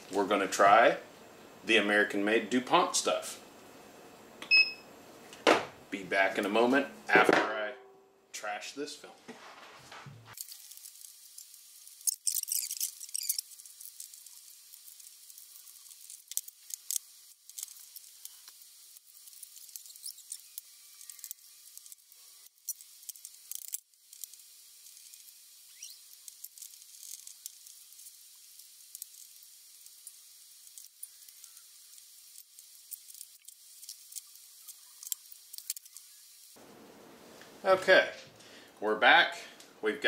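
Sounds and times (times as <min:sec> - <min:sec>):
steady high hiss: 0:00.0 - 0:09.2, 0:10.0 - 0:40.0
small metal screws clicking: 0:10.4 - 0:36.1.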